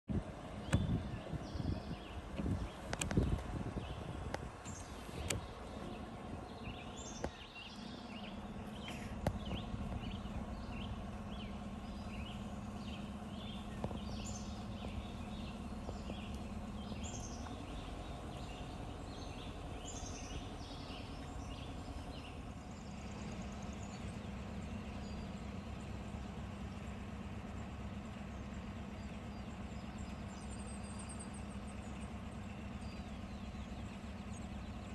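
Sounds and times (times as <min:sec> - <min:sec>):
vehicle engine idling: 0:00.0 - 0:34.9
high bird chirps: 0:00.6 - 0:25.5.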